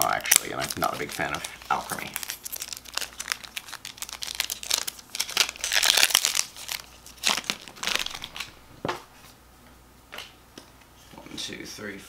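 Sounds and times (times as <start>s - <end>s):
foil wrapper crinkling: 0.0s - 8.6s
foil wrapper ripping: 0.0s - 8.6s.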